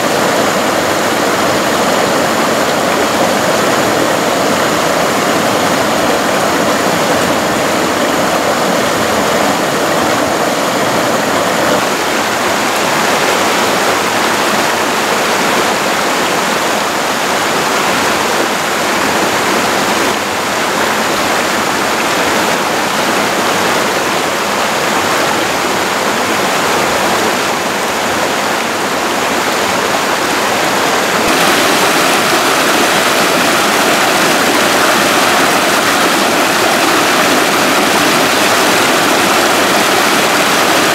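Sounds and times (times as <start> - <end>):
stream rushing over stones: 0.0 - 40.9.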